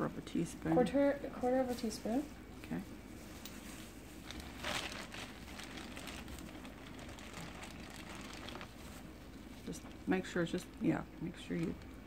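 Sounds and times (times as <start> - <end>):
plastic bag rustling: 1.4 - 10.8.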